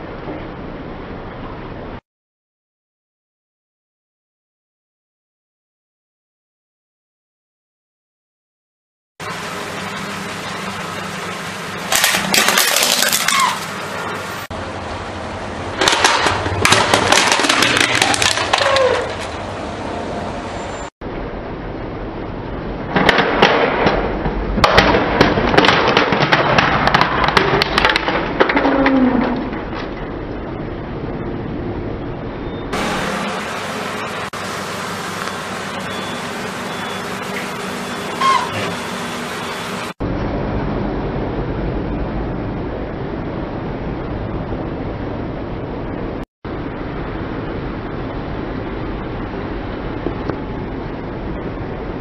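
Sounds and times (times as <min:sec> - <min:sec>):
car rolling over concrete: 0:11.9 - 0:13.7, 0:15.8 - 0:19.5
plastic toy cracking under tyre: 0:11.9 - 0:13.7, 0:15.8 - 0:19.4, 0:24.6 - 0:29.9
short squeak: 0:35.9 - 0:38.8.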